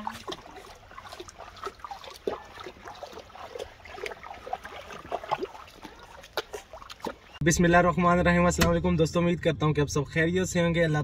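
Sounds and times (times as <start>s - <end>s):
goose wading splashes: 0.0s - 7.4s
stream trickling over stones: 0.0s - 7.4s.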